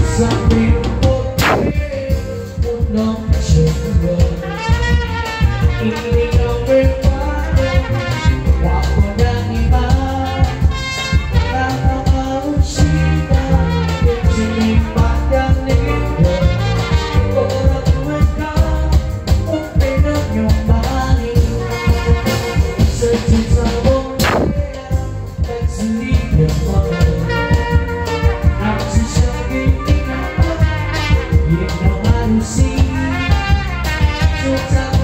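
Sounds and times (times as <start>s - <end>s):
person singing: 0.0s - 4.9s, 5.5s - 35.0s
live band music: 0.0s - 35.0s
sharp hit: 1.4s - 2.1s, 24.2s - 24.8s.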